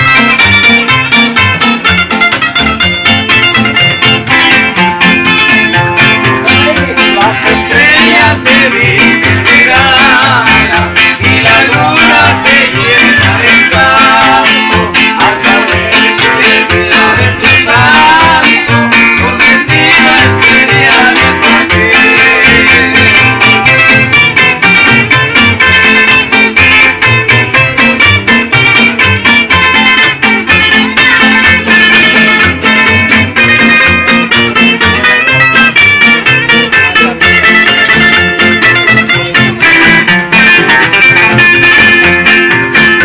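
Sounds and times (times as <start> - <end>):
acoustic guitars and upright bass: 0.0 - 43.0
man singing: 6.4 - 24.1.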